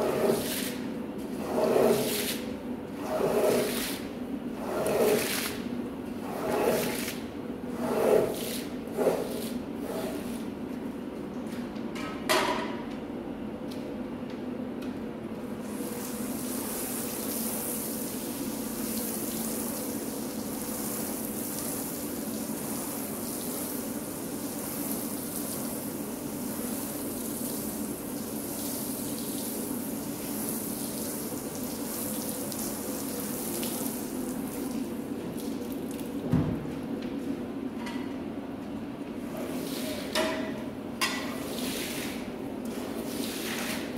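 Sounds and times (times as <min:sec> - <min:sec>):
brush scrubbing wet rug: 0:00.0 - 0:05.6, 0:06.2 - 0:07.2, 0:07.8 - 0:10.5, 0:41.4 - 0:43.9
water running and splashing: 0:16.0 - 0:36.2.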